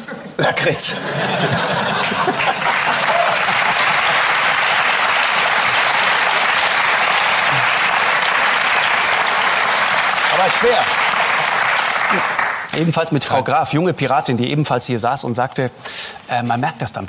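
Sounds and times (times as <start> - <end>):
studio audience applauding: 1.5 - 13.2.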